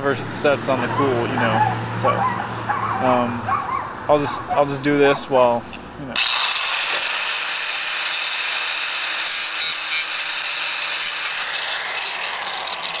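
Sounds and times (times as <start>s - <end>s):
angle grinder grinding metal: 6.2s - 13.0s.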